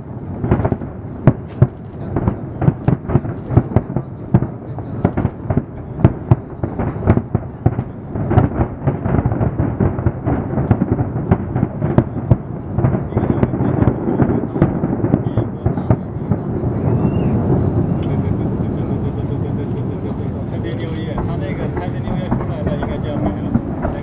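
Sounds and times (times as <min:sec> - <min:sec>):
fireworks bangs: 0:00.0 - 0:24.0
fireworks rumble: 0:00.0 - 0:24.0.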